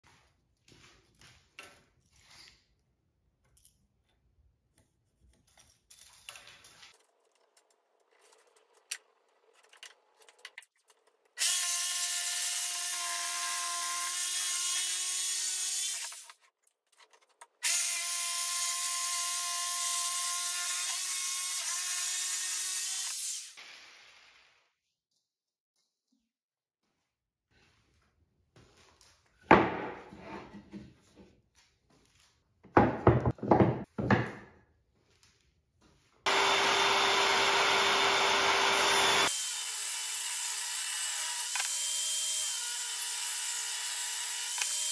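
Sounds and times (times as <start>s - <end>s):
jigsaw cutting wood: 11.4s - 16.4s, 17.6s - 24.0s, 36.3s - 44.9s.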